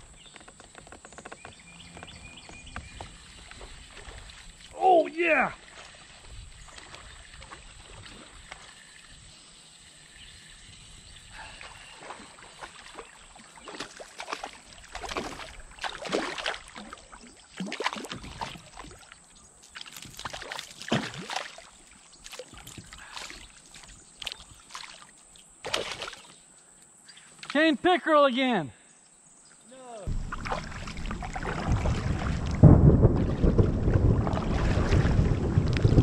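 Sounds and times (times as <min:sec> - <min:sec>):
fish splashing at water surface: 0:11.5 - 0:19.2, 0:19.8 - 0:23.6, 0:24.3 - 0:26.3, 0:30.1 - 0:36.0.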